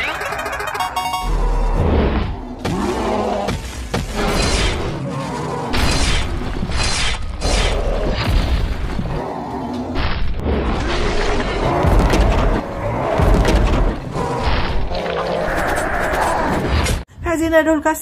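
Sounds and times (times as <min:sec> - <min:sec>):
action music: 0:00.0 - 0:01.4.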